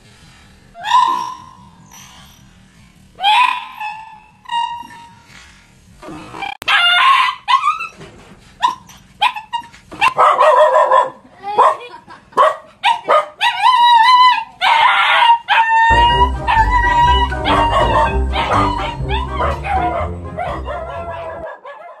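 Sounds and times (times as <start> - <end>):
small dog barking and yelping: 6.6 - 7.9, 8.6 - 11.8, 12.4 - 22.0
dog howling: 13.4 - 21.6
music with steady beat: 15.9 - 21.4.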